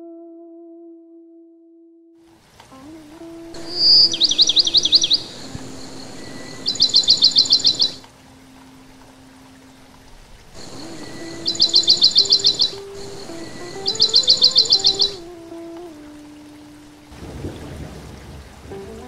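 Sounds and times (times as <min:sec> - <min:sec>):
bird chirping trills: 0:03.1 - 0:15.3.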